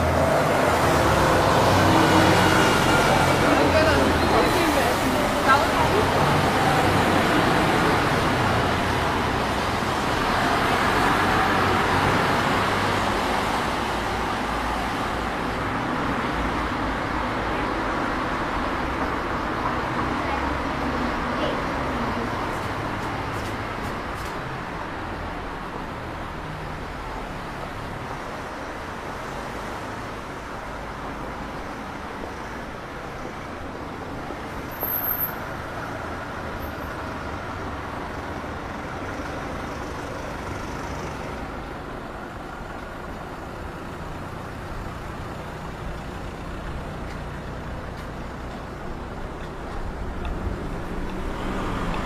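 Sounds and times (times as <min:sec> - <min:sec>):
cars driving past: 0:00.0 - 0:28.1, 0:43.6 - 0:52.0.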